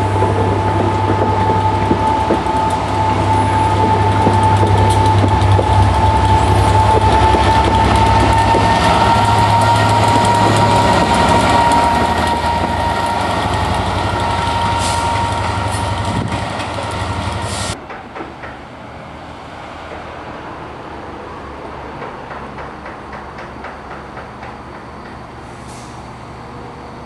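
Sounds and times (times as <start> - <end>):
diesel locomotive engine hum: 0.0 - 27.0
faint distant train clicks: 0.2 - 26.7.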